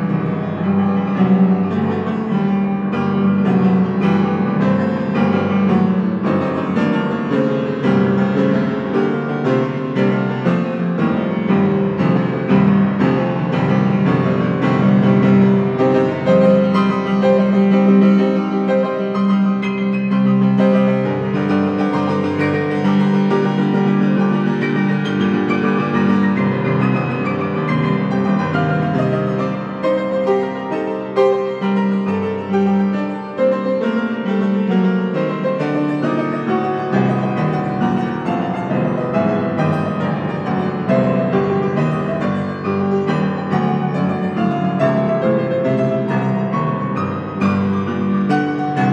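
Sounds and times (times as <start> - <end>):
grand piano improvisation: 0.0 - 48.9.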